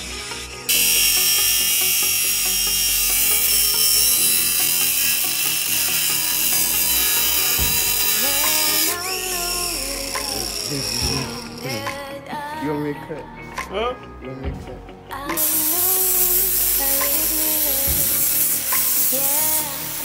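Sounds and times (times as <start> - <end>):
angle grinder cutting metal: 0.0 - 12.0, 15.4 - 20.0
background music: 0.0 - 20.0.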